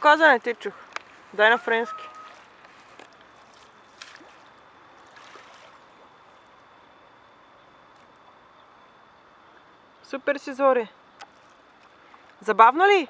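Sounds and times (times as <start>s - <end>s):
paddle dipping through water: 1.0s - 6.4s
soft water splashes: 1.0s - 6.6s.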